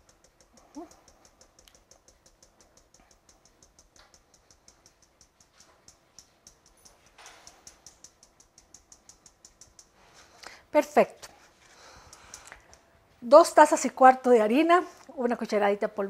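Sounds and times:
spatula tapping mesh sieve: 0.0s - 10.4s, 11.8s - 12.9s.

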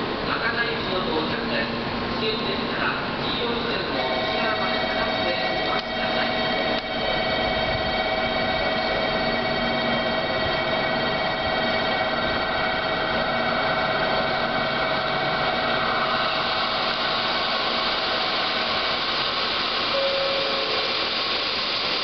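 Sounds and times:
diesel railcar approaching: 0.0s - 22.0s
short tone: 19.9s - 20.9s.

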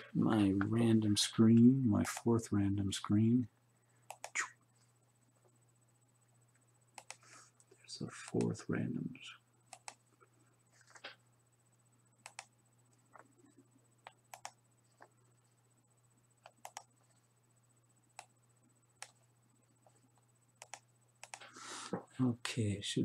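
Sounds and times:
low steady hum: 0.0s - 23.0s
mouse and keyboard clicks: 4.1s - 4.5s, 7.0s - 7.2s, 9.7s - 10.0s, 12.2s - 12.5s, 14.0s - 15.1s, 16.4s - 16.9s, 20.6s - 21.5s.

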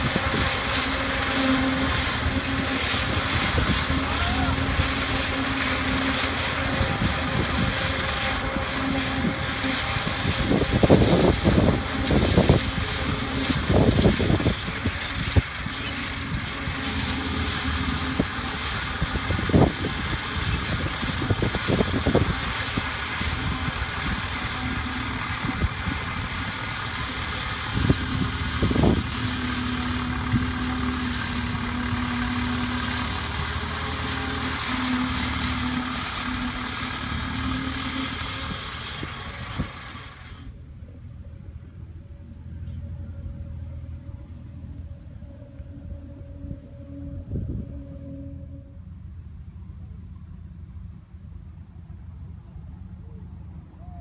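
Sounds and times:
fodder harvester chopping corn: 0.0s - 40.5s
tractor diesel engine droning: 0.0s - 54.0s.

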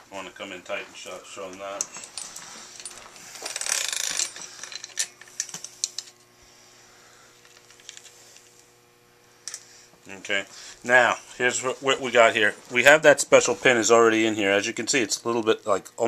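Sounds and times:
bike chain links rattling: 1.7s - 6.1s.

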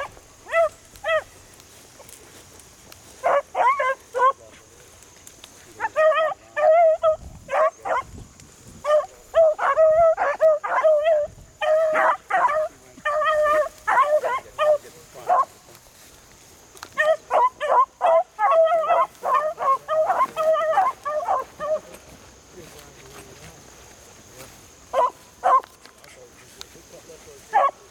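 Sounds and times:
hounds baying and yelping: 0.0s - 4.6s, 5.5s - 8.1s, 8.8s - 15.7s, 16.8s - 22.3s, 24.8s - 25.9s, 27.4s - 27.9s.

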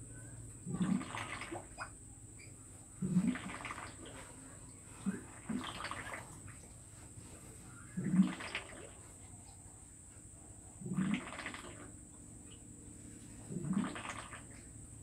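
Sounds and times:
water splashing: 3.0s - 6.7s, 7.9s - 9.1s, 13.5s - 14.6s.

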